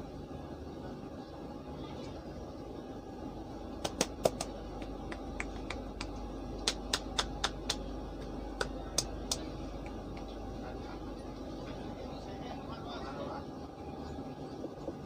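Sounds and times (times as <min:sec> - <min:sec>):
moving train rumble: 0:00.0 - 0:15.0
hands slapping head: 0:03.8 - 0:04.5, 0:05.4 - 0:07.8.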